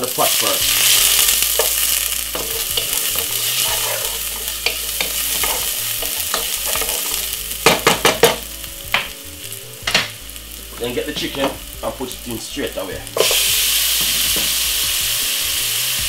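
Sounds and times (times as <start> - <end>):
onion and garlic sizzling in oil: 0.0 - 16.0
wooden spoon knocking pot: 4.6 - 9.2.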